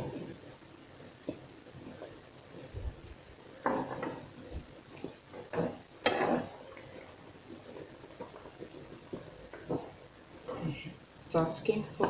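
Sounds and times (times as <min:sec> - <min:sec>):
fork scraping and knocking pan: 0:05.5 - 0:06.5.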